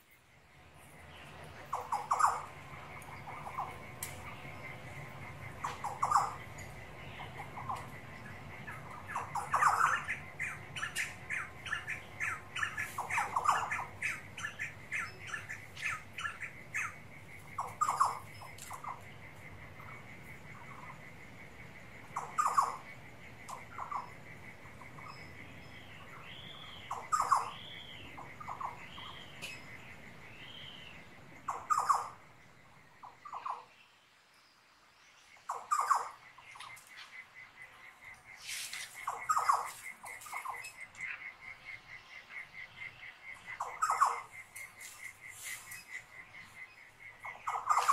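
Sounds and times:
birds calling: 0.0s - 47.9s
crickets trilling: 0.0s - 47.9s.

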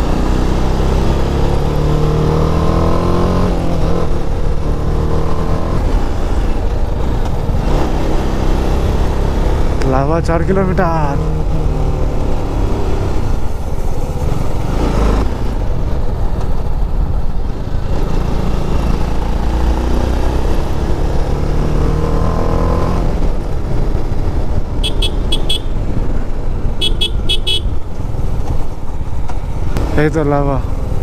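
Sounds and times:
motorcycle engine accelerating: 0.0s - 31.0s
horn toots: 24.8s - 25.8s, 26.8s - 27.8s.

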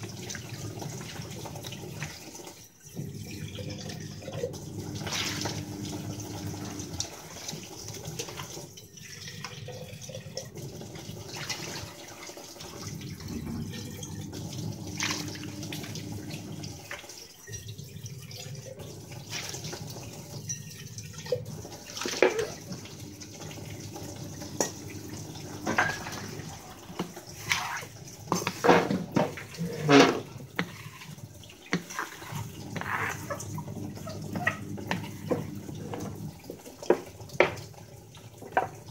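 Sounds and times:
tap water running into sink: 0.0s - 38.9s
metal vessels clanking: 24.5s - 37.6s.

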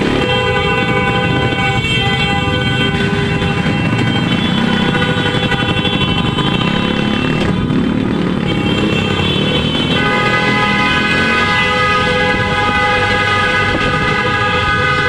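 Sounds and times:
motorcycle engines running: 0.0s - 15.0s
vehicle horns held: 8.4s - 15.0s.

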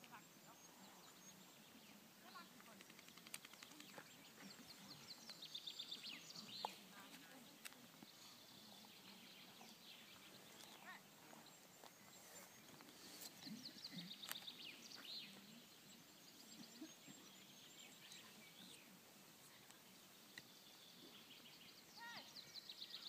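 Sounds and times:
faint birdsong: 0.0s - 23.0s
open-air background hiss: 0.0s - 23.0s
sharp clicks: 2.6s - 4.0s.

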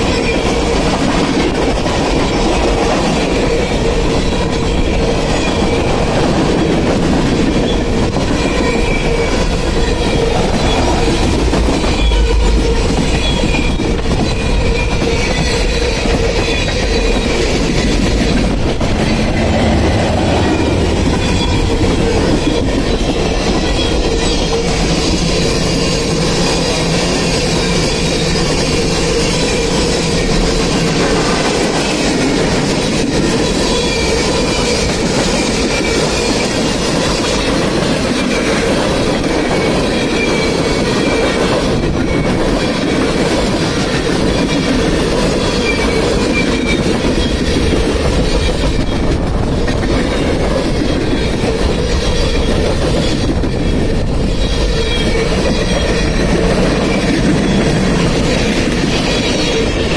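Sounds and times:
train wheels rumbling on rails: 0.0s - 59.9s
wheel squeals: 7.2s - 32.1s, 43.9s - 59.9s.

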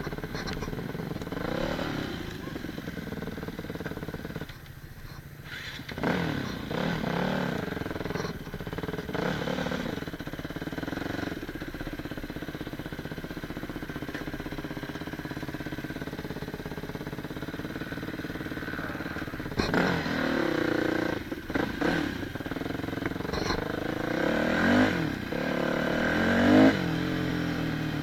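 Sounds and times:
dirt bike engine revving: 0.0s - 4.5s, 5.4s - 11.6s, 12.2s - 28.0s.

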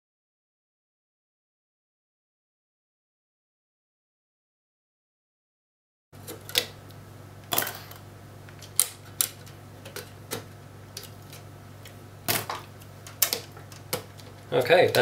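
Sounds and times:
steady low hum: 6.2s - 15.0s.

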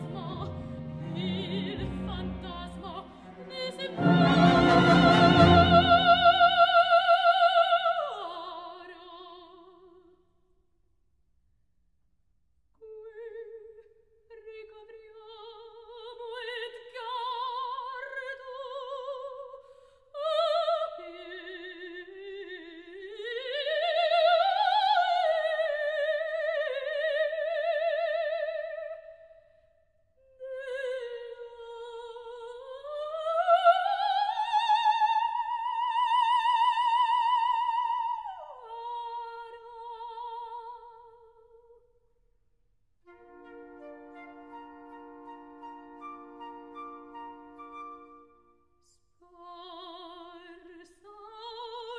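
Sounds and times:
soprano singing opera: 0.0s - 9.9s, 12.8s - 29.2s, 30.2s - 41.7s, 49.2s - 51.9s.

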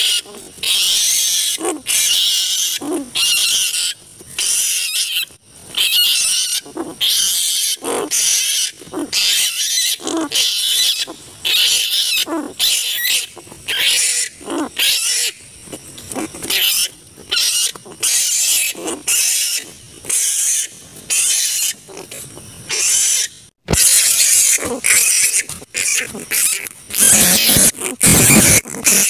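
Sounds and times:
flying foxes screeching: 0.0s - 15.4s, 22.7s - 29.0s.

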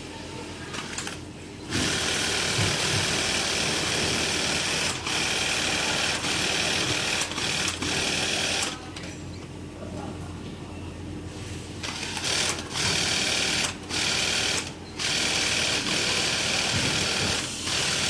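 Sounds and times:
sewing machine stitching: 11.8s - 18.0s.

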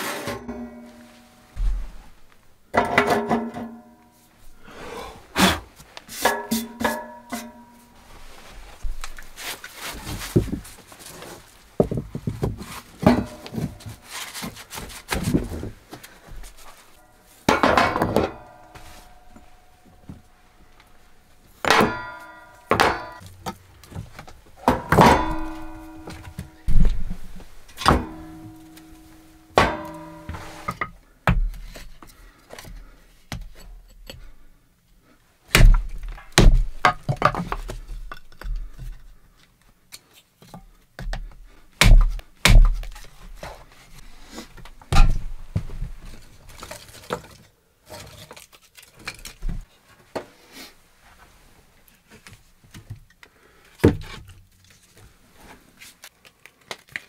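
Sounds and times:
hatchet splitting kindling: 41.8s - 43.2s.

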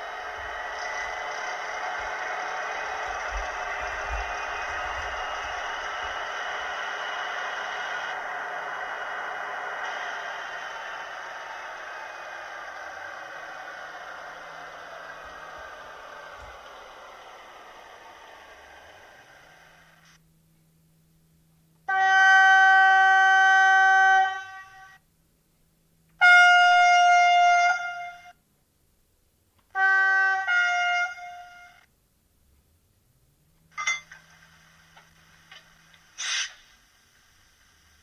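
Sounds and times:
diesel engine running sound: 0.0s - 21.9s, 33.1s - 38.0s
train horn blasts: 21.8s - 25.0s, 26.2s - 28.4s, 29.7s - 31.9s.

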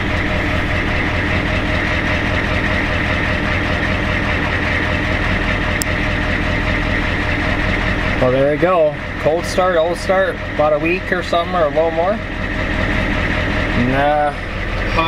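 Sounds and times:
diesel engine idling: 0.0s - 15.0s.

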